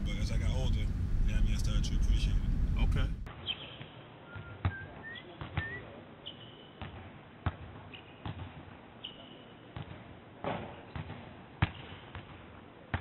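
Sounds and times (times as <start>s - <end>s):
sneakers squeaking on floor: 3.5s - 7.0s, 9.0s - 9.6s
basketball bouncing: 6.8s - 8.7s, 9.8s - 13.0s.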